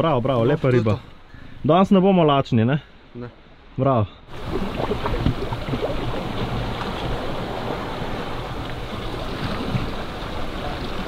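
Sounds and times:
sea waves against rocks: 0:04.3 - 0:11.0
wind buffeting microphone: 0:04.3 - 0:11.0.

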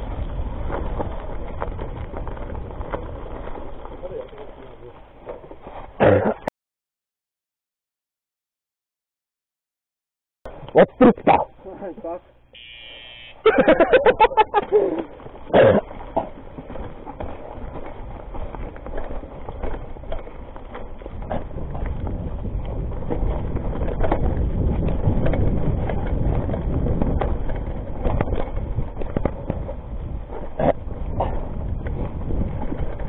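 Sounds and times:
bike tyres rumbling over stones: 0:00.0 - 0:06.2, 0:13.4 - 0:33.0
short cough-like voice: 0:06.0 - 0:06.5.

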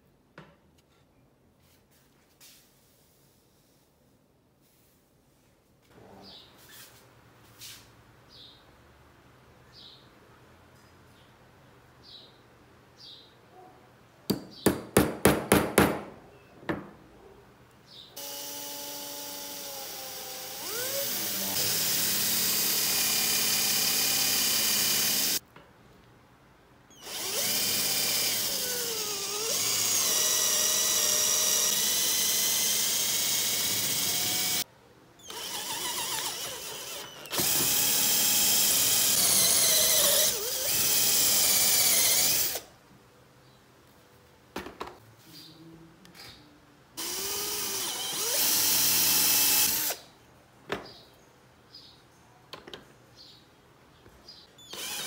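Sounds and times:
cordless drill boring into wood: 0:18.2 - 0:25.4, 0:27.0 - 0:34.6, 0:35.3 - 0:42.7, 0:47.0 - 0:50.0, 0:54.7 - 0:55.0.

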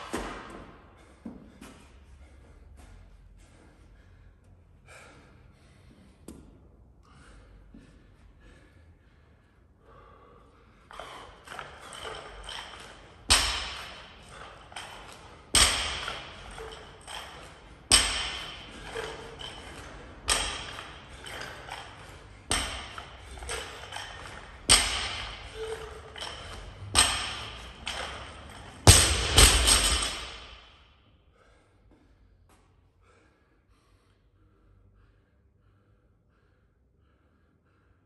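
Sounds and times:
barbell bouncing on floor: 0:10.9 - 0:30.8
barbell thudding on floor: 0:13.3 - 0:17.3, 0:17.9 - 0:21.8, 0:22.5 - 0:30.6.

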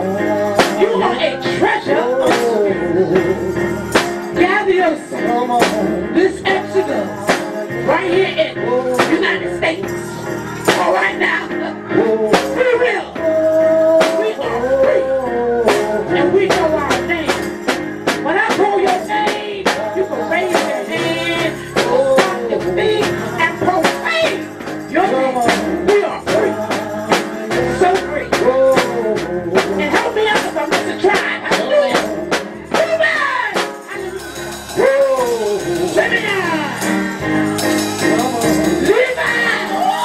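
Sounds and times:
group singing religious song: 0:00.0 - 0:16.6, 0:18.3 - 0:40.0
rhythmic hand clapping: 0:03.4 - 0:04.7, 0:15.7 - 0:40.0.

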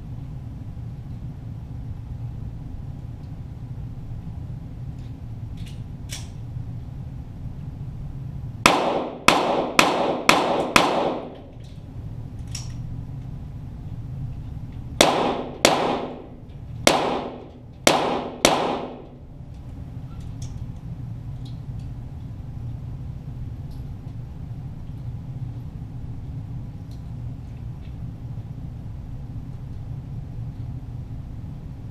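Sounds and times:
steady low hum: 0:00.0 - 0:31.9
pistol shots echoing: 0:08.7 - 0:11.5, 0:15.0 - 0:19.2.

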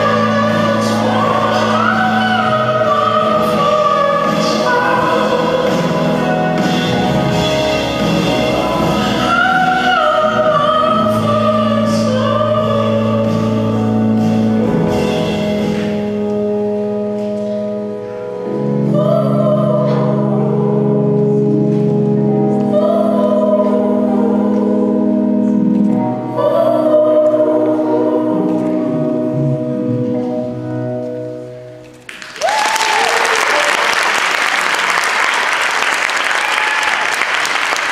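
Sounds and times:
slow song with singing: 0:00.0 - 0:31.8
audience applauding: 0:32.1 - 0:37.9
person whooping: 0:32.4 - 0:34.0.

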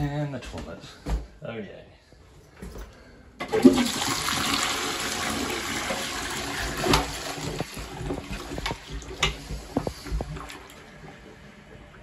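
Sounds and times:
water gushing into toilet bowl: 0:03.4 - 0:12.0.

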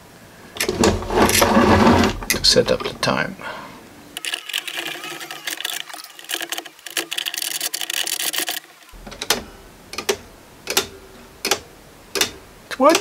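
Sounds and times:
plastic gears rattling and clicking: 0:04.2 - 0:09.4
clock escapement ticking: 0:09.1 - 0:13.0.

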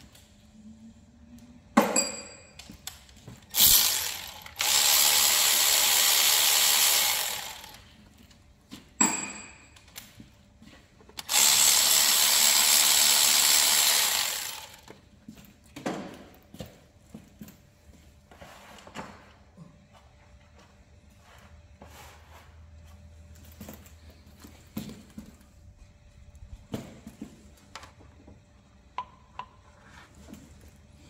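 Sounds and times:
power drill running: 0:03.5 - 0:07.9, 0:11.2 - 0:14.9.

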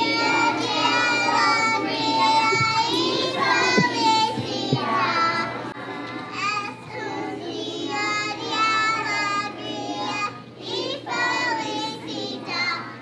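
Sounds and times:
children singing together: 0:00.0 - 0:13.0.

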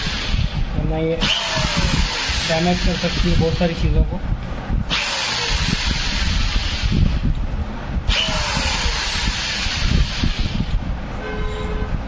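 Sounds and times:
electric drill scraping metal pipe: 0:01.2 - 0:03.6, 0:04.9 - 0:07.0, 0:08.1 - 0:10.8.

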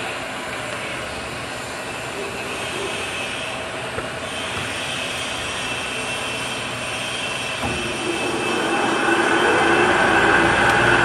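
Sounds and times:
workshop machine noise: 0:00.0 - 0:11.0
lathe chuck humming: 0:07.6 - 0:11.0.

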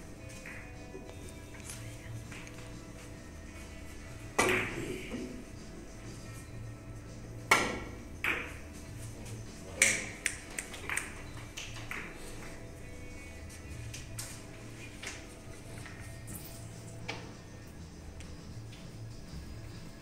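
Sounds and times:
cue tip striking ball: 0:04.4 - 0:05.4, 0:07.5 - 0:08.6
billiard balls clicking together: 0:09.7 - 0:12.5.

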